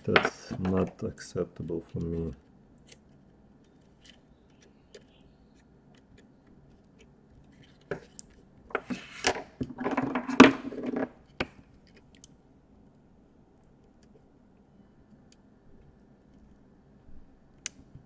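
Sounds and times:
tape rustling: 0:00.3 - 0:09.3.

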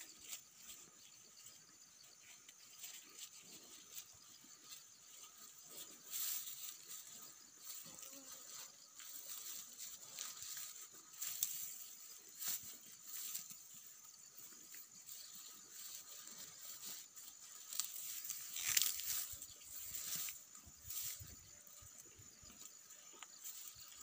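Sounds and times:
cow tearing grass: 0:15.7 - 0:21.3.

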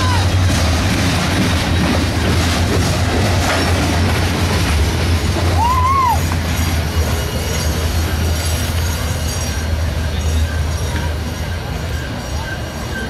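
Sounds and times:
freight train cars rumbling past: 0:00.0 - 0:13.0
wheel squeal: 0:05.5 - 0:13.0.

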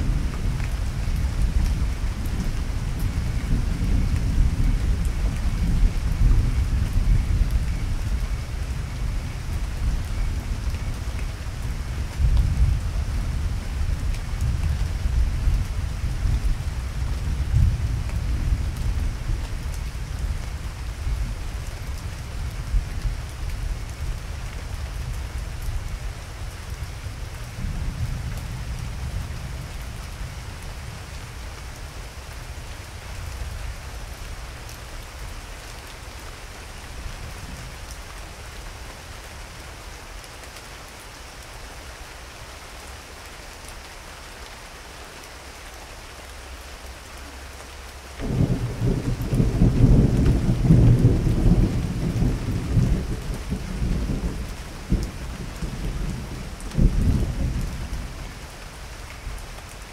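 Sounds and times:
low thunder rumble: 0:48.2 - 0:58.4.

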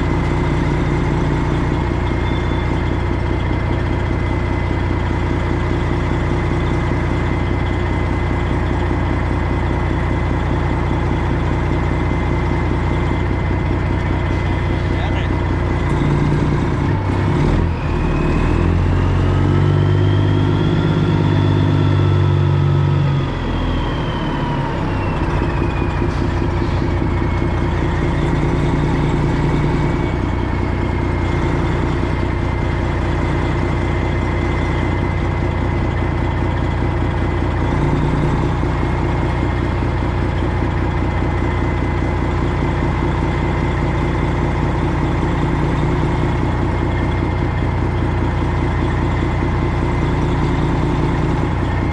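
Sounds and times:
diesel truck engine running: 0:00.0 - 0:51.9
high engine whine: 0:00.0 - 0:51.9.

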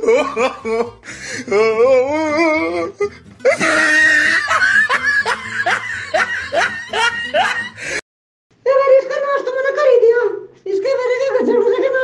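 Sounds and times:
quick falling laughs: 0:03.4 - 0:07.8.

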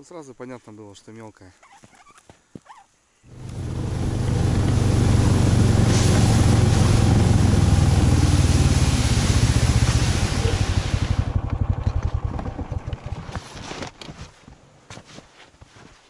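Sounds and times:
vehicle engine running: 0:03.3 - 0:13.7.

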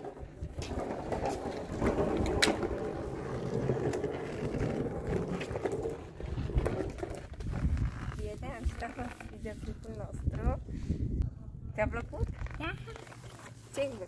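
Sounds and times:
skateboard wheels rolling: 0:00.0 - 0:09.9.

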